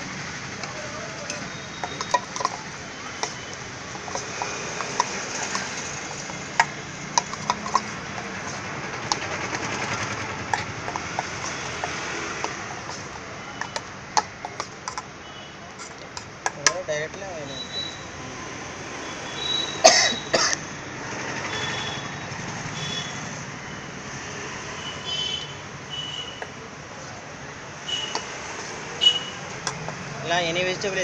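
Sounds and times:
background noise: 0.0s - 31.0s
spoon scraping metal bowl: 1.3s - 15.1s.

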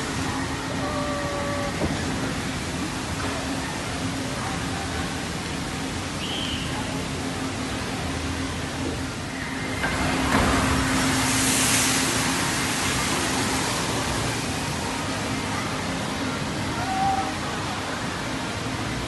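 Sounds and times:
water rushing in a flume channel: 0.0s - 19.0s
boat splashing through water: 9.0s - 15.5s.

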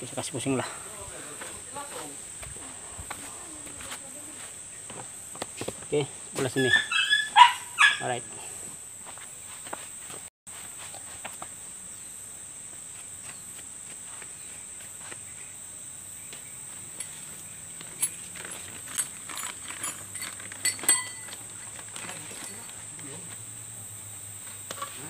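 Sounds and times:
high-pitched insect drone: 0.0s - 25.0s
metallic clink of small parts: 17.8s - 22.8s.

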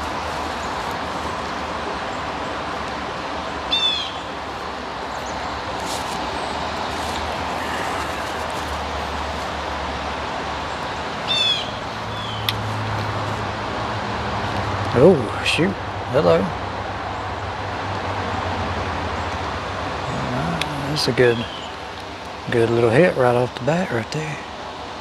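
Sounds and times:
creek water flowing: 0.0s - 25.0s
bird calling: 3.7s - 9.6s, 11.2s - 12.6s, 20.0s - 22.0s.

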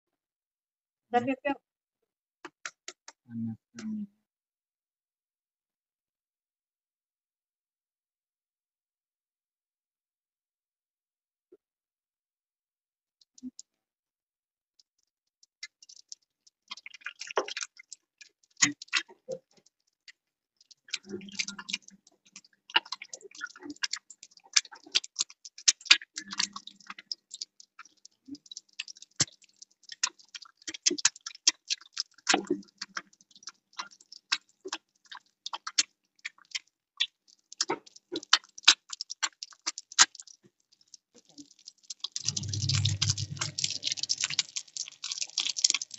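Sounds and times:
egg frying in crackling oil: 14.7s - 45.9s.

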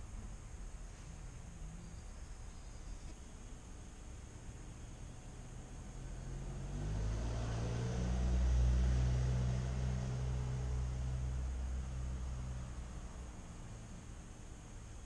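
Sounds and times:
passing engine hum: 4.4s - 14.8s.

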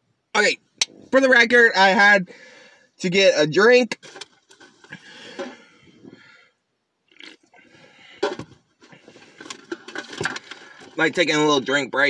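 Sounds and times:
faint rustling and handling: 3.9s - 6.3s, 7.7s - 11.4s.

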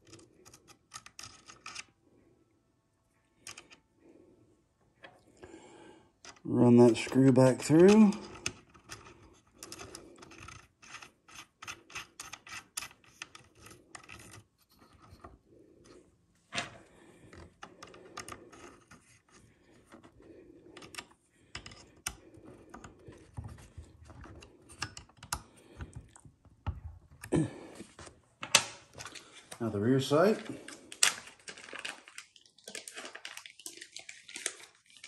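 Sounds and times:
small metal parts clicking: 7.7s - 14.4s.

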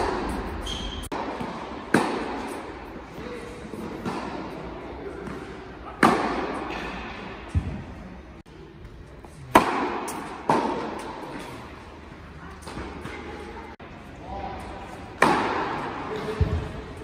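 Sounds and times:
tennis racket hitting ball: 0.0s - 2.7s, 5.2s - 6.8s, 9.5s - 11.2s, 15.2s - 16.6s
tennis ball bouncing: 1.1s - 2.6s.

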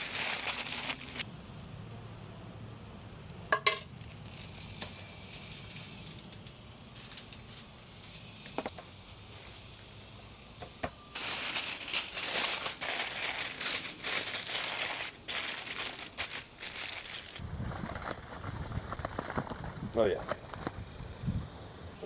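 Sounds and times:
aluminium foil crinkling: 0.0s - 1.2s, 4.0s - 7.8s, 11.1s - 21.0s.

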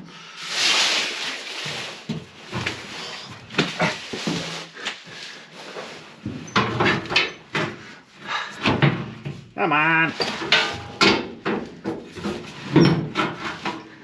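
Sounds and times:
metal tank knocking and scraping: 6.2s - 7.9s, 8.5s - 14.0s
man grunting: 9.6s - 10.2s.

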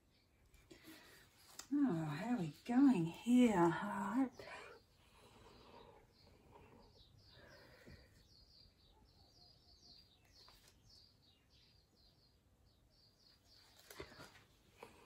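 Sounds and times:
faint bird chirps: 4.4s - 14.5s.

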